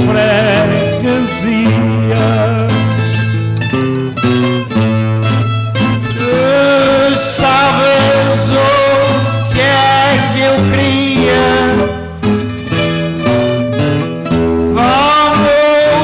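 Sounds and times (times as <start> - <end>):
plucked guitars playing: 0.0 - 16.0
man singing a wavering note: 6.2 - 12.2, 14.7 - 16.0.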